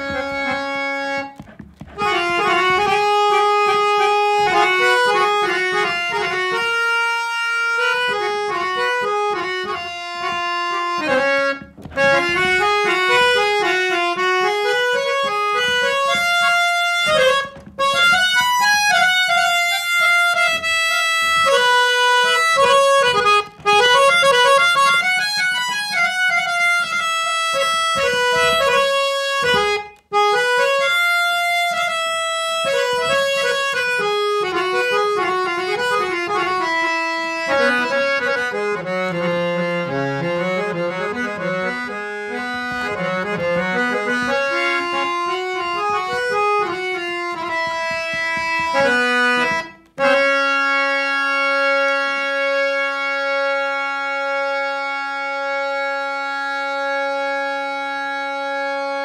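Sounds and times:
harmonium playing a melody: 0:00.0 - 0:59.0.

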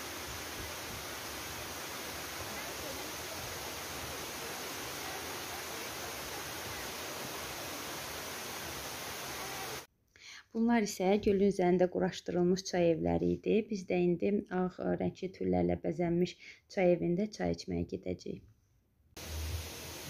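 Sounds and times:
waterfall rushing: 0:00.0 - 0:09.9, 0:19.2 - 0:20.0.

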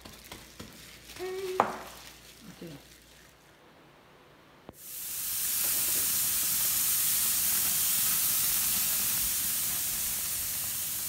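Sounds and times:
burgers sizzling on a grill: 0:04.7 - 0:11.0.

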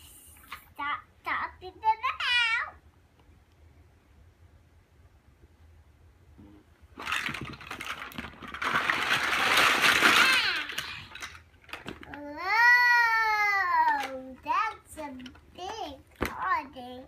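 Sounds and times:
plastic bag rustling: 0:07.0 - 0:12.1
plastic blocks clattering: 0:07.0 - 0:12.3.

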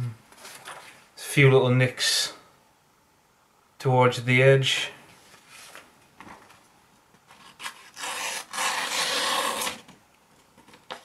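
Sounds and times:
knife slicing paper: 0:07.4 - 0:09.8.

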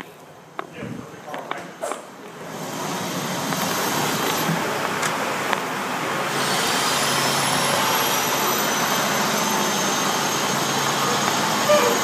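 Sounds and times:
engine noise: 0:00.3 - 0:12.0
high whine: 0:02.4 - 0:12.0.

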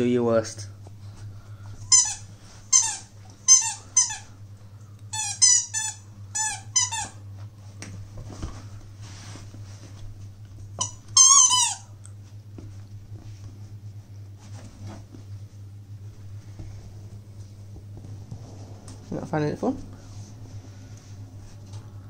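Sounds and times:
squeaky toy squeaking: 0:01.9 - 0:04.2, 0:05.2 - 0:07.1, 0:10.8 - 0:11.8.

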